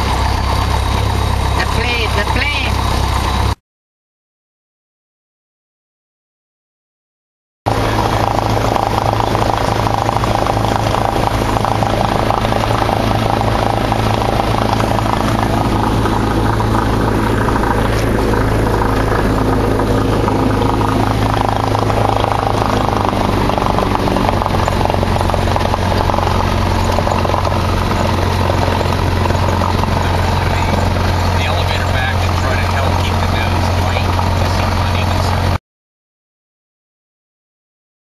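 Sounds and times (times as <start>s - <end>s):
plane engine and propeller droning: 0.0s - 3.6s, 7.7s - 35.6s.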